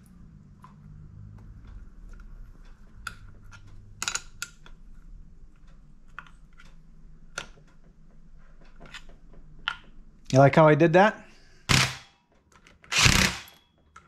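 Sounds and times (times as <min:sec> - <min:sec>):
metal parts and tools clicking: 0:02.6 - 0:04.8, 0:11.7 - 0:14.0.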